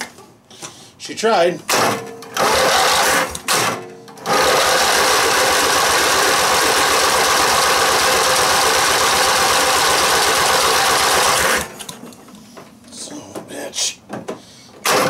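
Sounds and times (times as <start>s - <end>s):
engine starter cranking: 1.7s - 11.9s.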